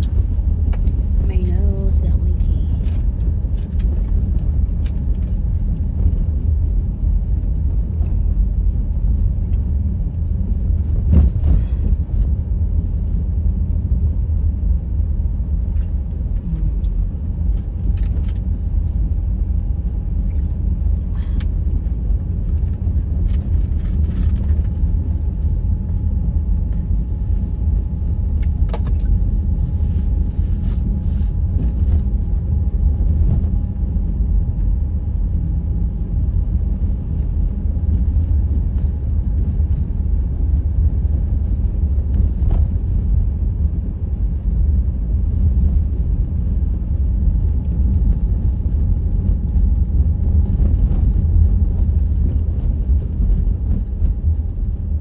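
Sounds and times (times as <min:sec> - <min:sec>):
wind buffeting microphone: 0:17.1 - 0:55.0.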